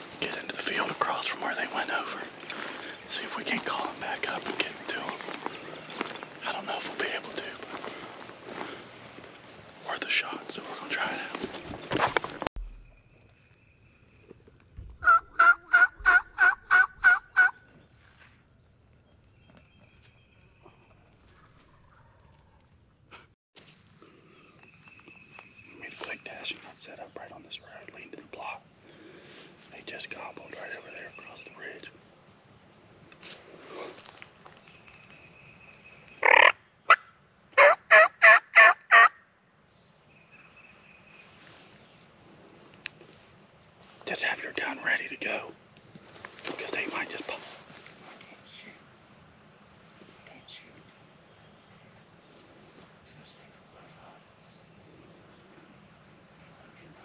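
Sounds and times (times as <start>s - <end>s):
distant turkey gobble: 15.0s - 17.6s, 36.2s - 39.2s
turkey hen yelps: 15.0s - 17.6s, 36.2s - 39.2s.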